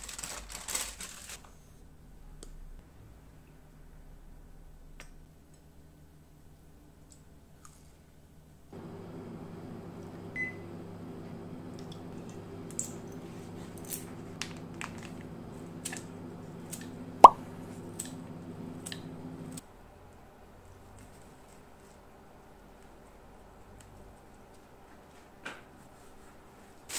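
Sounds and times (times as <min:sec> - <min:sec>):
appliance hum: 0:08.7 - 0:19.6.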